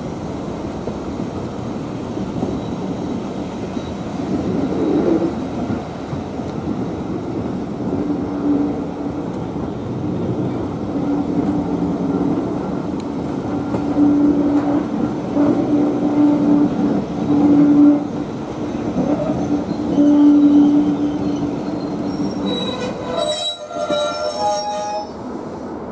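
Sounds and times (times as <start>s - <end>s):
train wheels rumbling: 0.0s - 25.9s
wheels squealing high-pitched: 19.2s - 25.2s.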